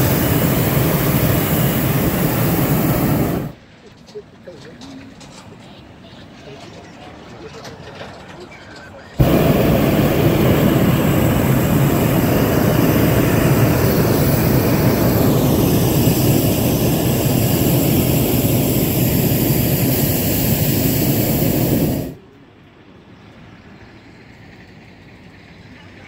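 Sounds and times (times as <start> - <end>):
propane burner blast: 0.0 - 3.6, 9.2 - 22.2.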